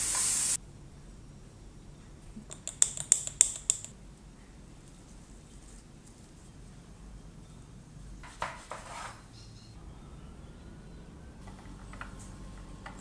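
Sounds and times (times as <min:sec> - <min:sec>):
mushrooms sizzling on grill pan: 0:00.0 - 0:00.6
sharp crisp clicks: 0:02.5 - 0:03.9.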